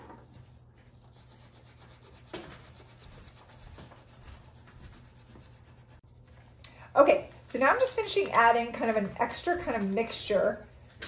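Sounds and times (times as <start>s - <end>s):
crayon rubbing on paper: 1.0s - 6.0s.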